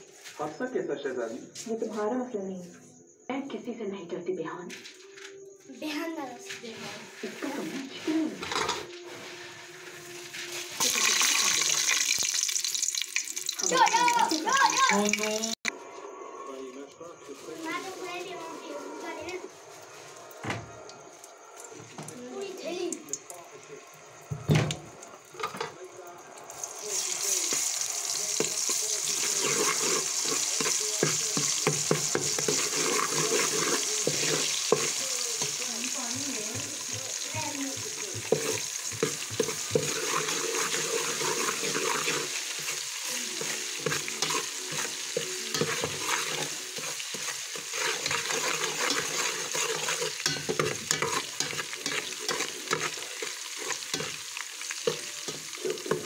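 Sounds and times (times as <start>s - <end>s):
paste sizzling in hot oil: 6.6s - 15.7s, 17.3s - 56.0s
metal spoon scraping pot: 28.4s - 35.6s, 38.1s - 54.2s.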